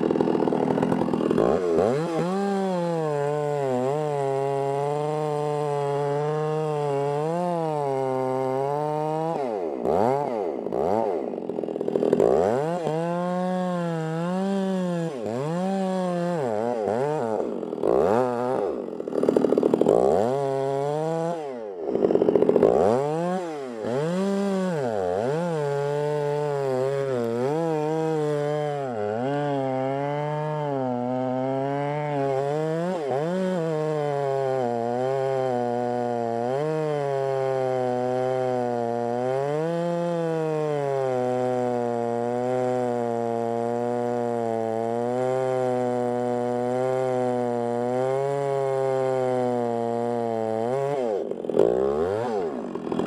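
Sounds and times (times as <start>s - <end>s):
chainsaw cutting wood: 0.0s - 53.0s.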